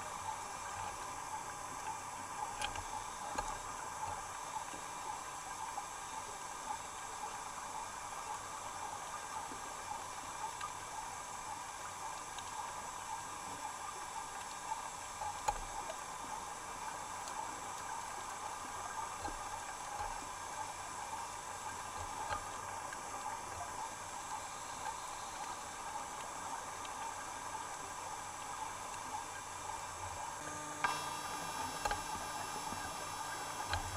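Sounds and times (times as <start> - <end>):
small clicks: 1.8 - 4.8, 30.4 - 33.9.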